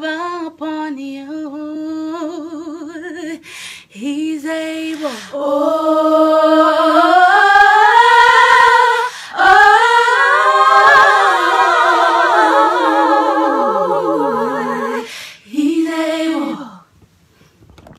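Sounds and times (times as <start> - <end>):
a cappella gospel harmony singing: 0.0 - 16.9.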